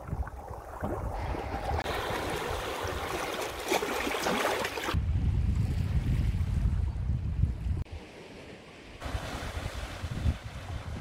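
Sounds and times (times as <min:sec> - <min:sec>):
waves lapping over rocks: 0:00.7 - 0:05.0
wind buffeting microphone: 0:04.9 - 0:08.0, 0:09.0 - 0:11.0.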